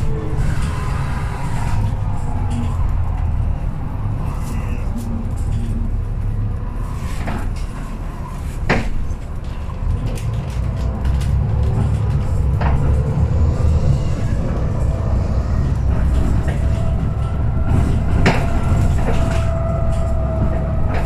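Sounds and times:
bus diesel engine drone: 0:00.0 - 0:21.0.

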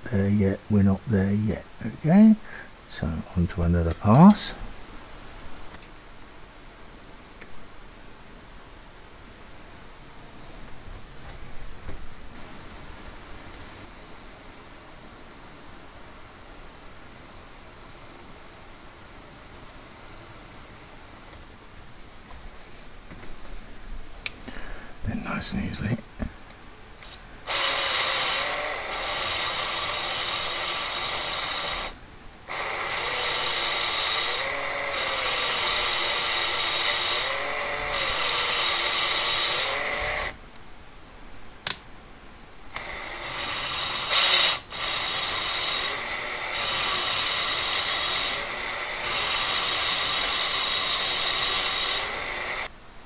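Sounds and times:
lapping tool whirring and grinding: 0:27.0 - 0:40.4, 0:42.7 - 0:52.7.

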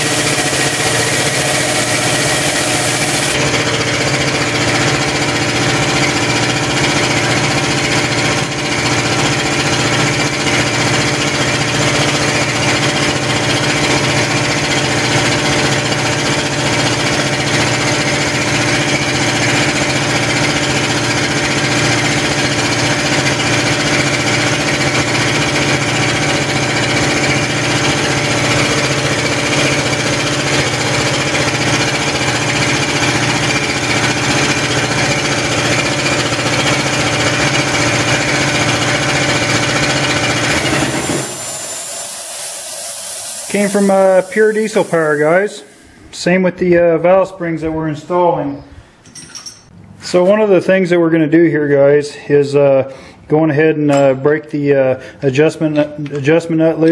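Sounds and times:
machine droning with low pulse: 0:00.0 - 0:06.3.

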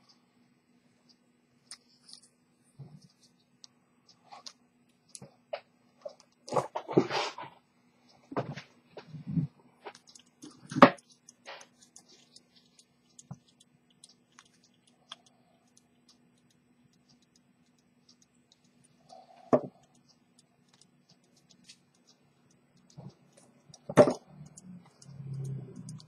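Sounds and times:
faint steady hum: 0:00.0 - 0:26.0
small parts clicking and tapping: 0:09.9 - 0:26.0.

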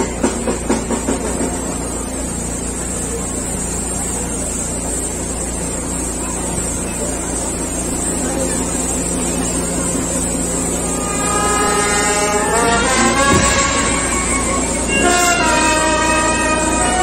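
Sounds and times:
steady street hum: 0:00.0 - 0:17.0
brass band playing slow march: 0:10.3 - 0:17.0.

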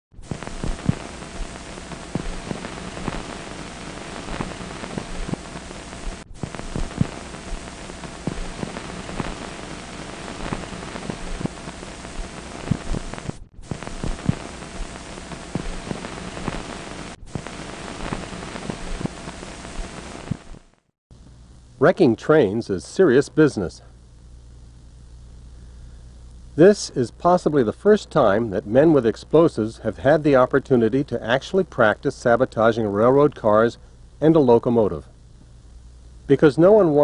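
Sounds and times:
low hum: 0:00.2 - 0:20.6
film hiss with crackles and pops: 0:00.2 - 0:37.0.

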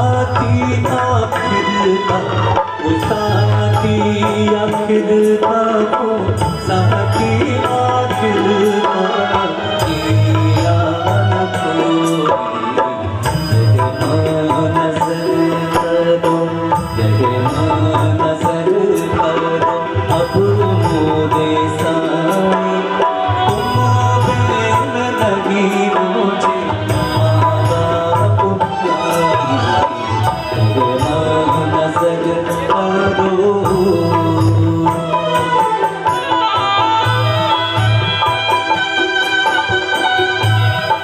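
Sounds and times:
tabla drumming: 0:00.0 - 0:41.0.

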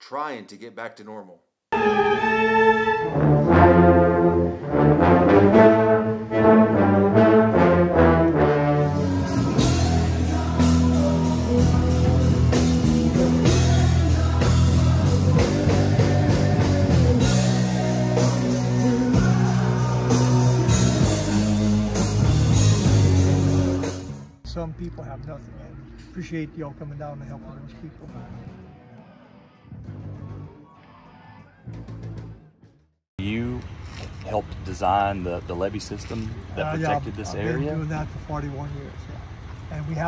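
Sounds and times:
brass band playing chords: 0:01.7 - 0:24.6
live rock band playing: 0:08.6 - 0:24.2.

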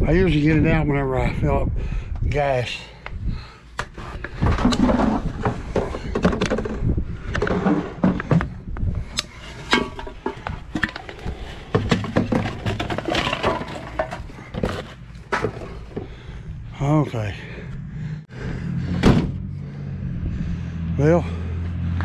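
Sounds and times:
items knocking and clicking: 0:03.8 - 0:08.6, 0:09.6 - 0:16.2
steady low rumble: 0:14.4 - 0:21.9.

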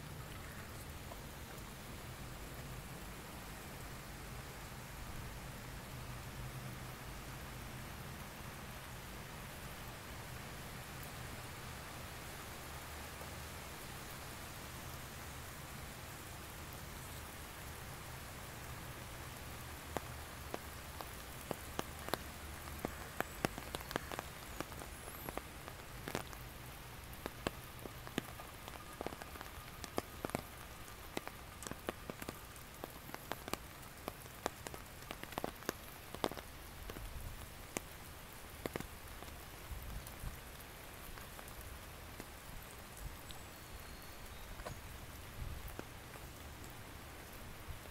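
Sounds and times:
rain on foliage: 0:00.0 - 0:47.9.

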